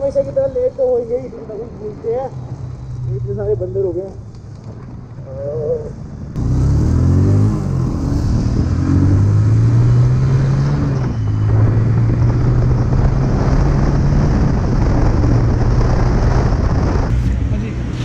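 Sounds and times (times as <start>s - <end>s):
motorcycle engine accelerating: 6.4s - 18.0s
wind on microphone: 8.1s - 18.0s.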